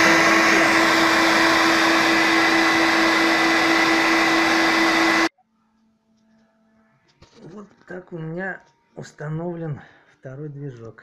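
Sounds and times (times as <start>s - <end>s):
vacuum turbine rushing and whining: 0.0s - 5.3s.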